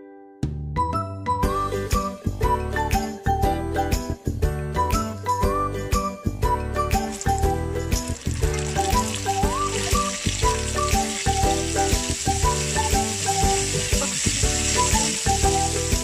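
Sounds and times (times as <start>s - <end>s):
background music: 0.0s - 16.0s
oil sizzling and bubbling: 6.8s - 16.0s.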